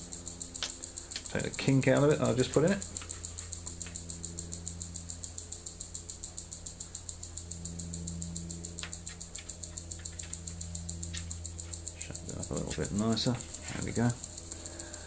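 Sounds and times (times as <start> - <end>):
fast pulsing hiss: 0.0 - 15.0
steady low hum: 0.0 - 15.0
wire clicking: 0.6 - 4.1.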